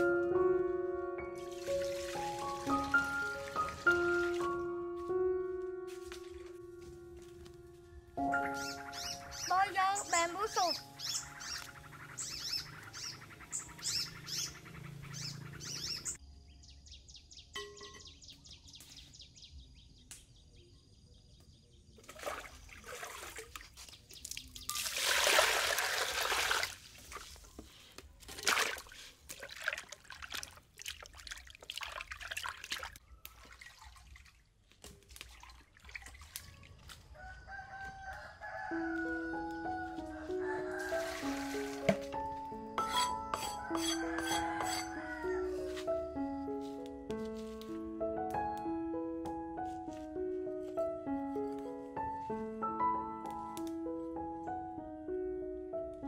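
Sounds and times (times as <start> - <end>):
water splashing into a basin: 1.5 - 4.4, 22.0 - 27.5, 28.3 - 37.1, 40.7 - 42.2.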